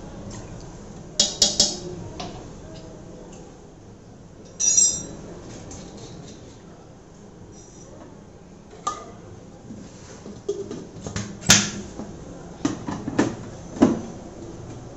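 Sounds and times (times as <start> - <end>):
ringing metal clink: 4.5 - 5.2
spoon clinking on metal jar: 4.5 - 5.2.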